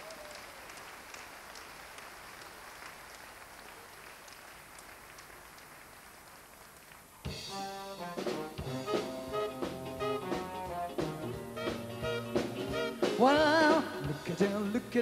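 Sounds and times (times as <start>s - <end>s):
audience applauding: 0.0s - 7.3s
live dance band playing: 7.3s - 14.8s.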